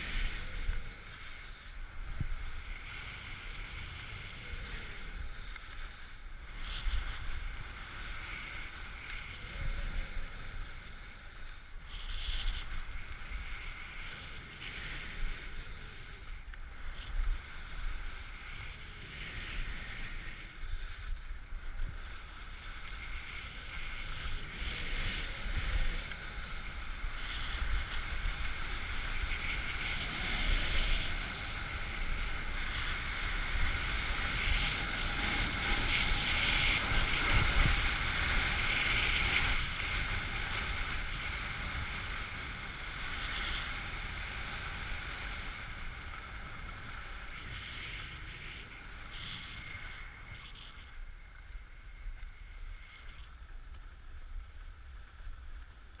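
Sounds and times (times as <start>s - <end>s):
skis scraping on snow: 0.0s - 56.0s
wind buffeting microphone: 23.2s - 46.4s.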